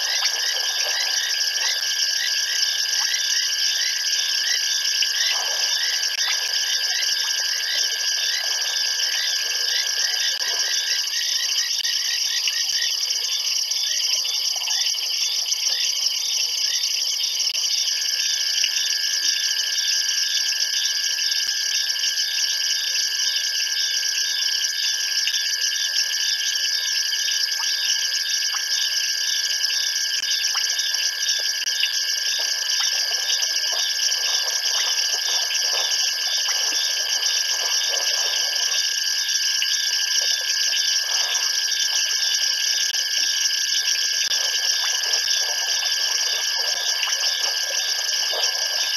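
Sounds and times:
insects shrilling: 0:00.0 - 0:13.6, 0:26.5 - 0:48.9.

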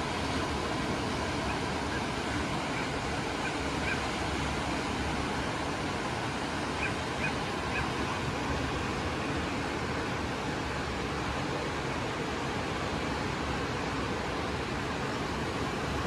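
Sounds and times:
ocean surf breaking: 0:00.0 - 0:16.0
faint bird calls: 0:02.7 - 0:04.1, 0:06.8 - 0:07.9.

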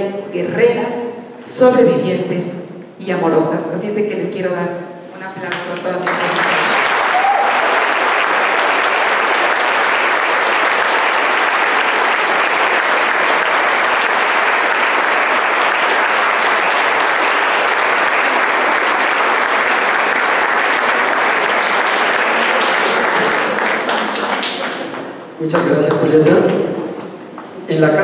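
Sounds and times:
audience applauding: 0:05.5 - 0:26.7.

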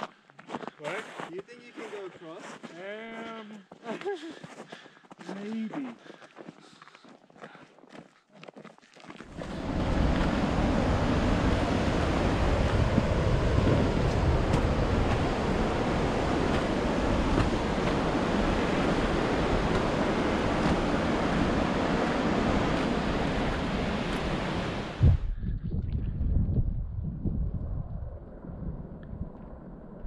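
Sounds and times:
wind buffeting microphone: 0:09.3 - 0:30.0.

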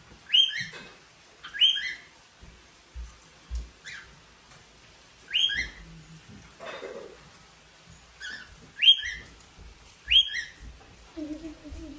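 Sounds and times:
cockatiels whistling calls: 0:00.2 - 0:00.8, 0:01.4 - 0:02.1, 0:05.3 - 0:05.8, 0:08.2 - 0:09.3, 0:10.0 - 0:10.6.

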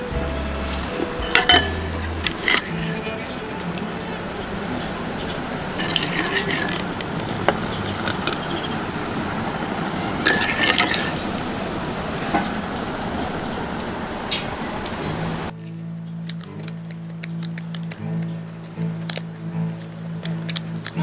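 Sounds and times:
music: 0:00.0 - 0:07.0, 0:15.5 - 0:21.0
steady background hiss: 0:00.0 - 0:16.8
metal utensils clinking on dishes: 0:00.6 - 0:04.1, 0:04.7 - 0:08.8, 0:10.2 - 0:11.3.

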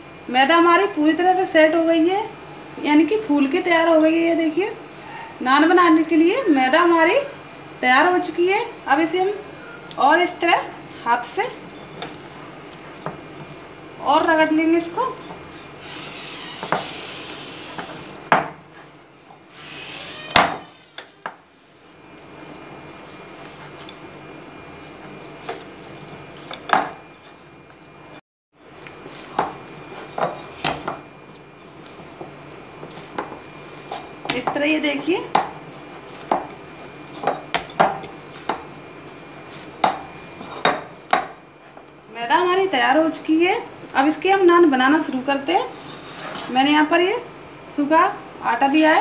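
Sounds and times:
dough kneaded in glass bowl: 0:21.8 - 0:27.4.

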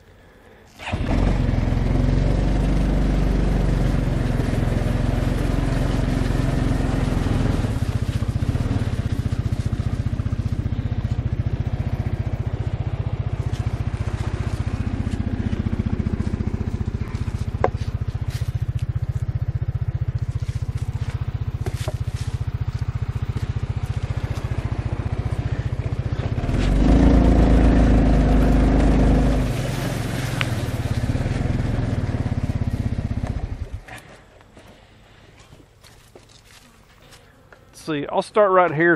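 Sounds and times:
four-wheeler engine running: 0:00.7 - 0:37.2.

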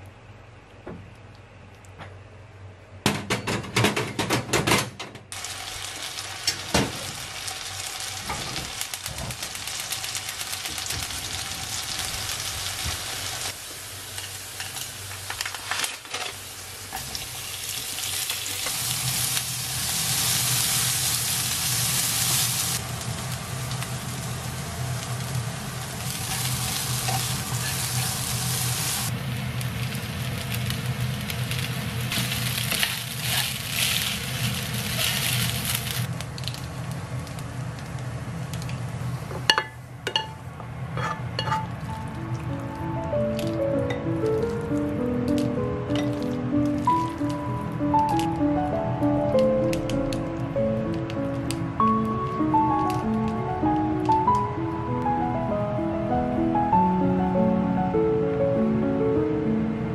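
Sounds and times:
food sizzling in a frying pan: 0:05.3 - 0:39.6, 0:46.0 - 0:48.2.

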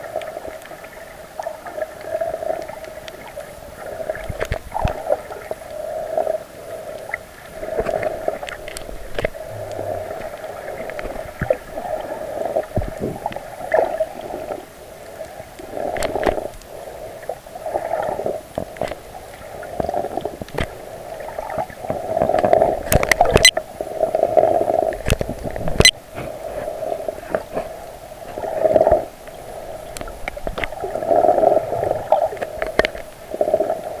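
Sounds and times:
underwater sloshing and gurgling: 0:00.0 - 0:34.0
sharp underwater clicks and knocks: 0:04.2 - 0:05.2, 0:07.7 - 0:11.7, 0:12.6 - 0:13.4, 0:15.9 - 0:16.7, 0:18.5 - 0:19.0, 0:19.8 - 0:20.8, 0:21.5 - 0:23.6, 0:25.0 - 0:26.3, 0:29.9 - 0:30.8, 0:32.3 - 0:33.1.

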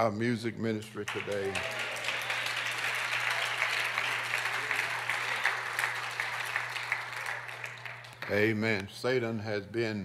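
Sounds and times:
congregation applauding: 0:00.9 - 0:08.6.

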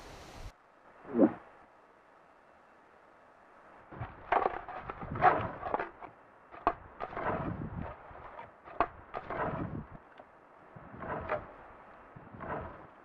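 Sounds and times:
antlers raking rustling branches: 0:04.0 - 0:10.1, 0:10.7 - 0:13.0.

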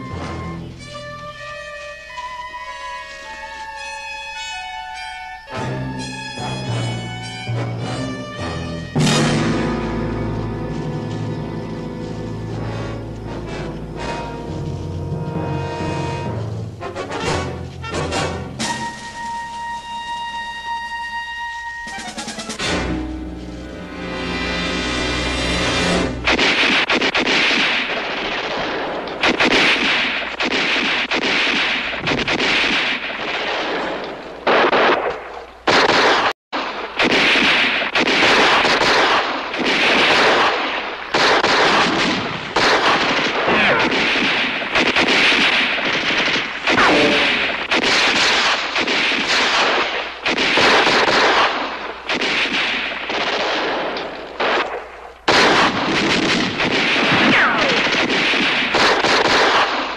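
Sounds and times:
heavy gunfire bursts: 0:25.8 - 0:59.9.

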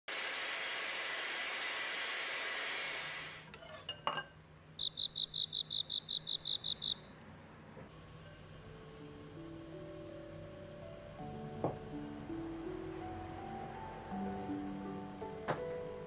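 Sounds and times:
electric hand mixer whirring: 0:00.1 - 0:03.5.

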